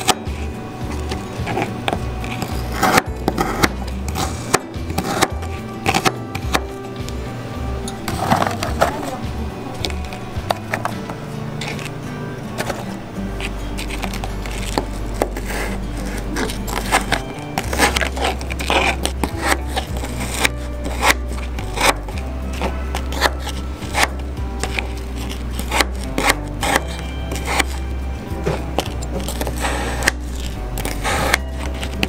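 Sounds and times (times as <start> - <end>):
background music with deep bass: 0.0 - 32.0
knife chopping on cutting board: 2.7 - 6.8, 16.4 - 22.2, 23.1 - 24.8, 25.6 - 27.8.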